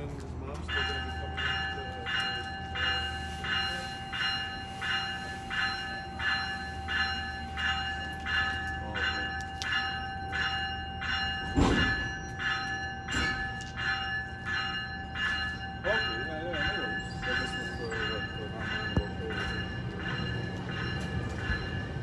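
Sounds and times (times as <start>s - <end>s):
low train rumble: 0.0s - 22.0s
train warning bell ringing: 0.0s - 22.0s
loud thump: 11.6s - 12.0s.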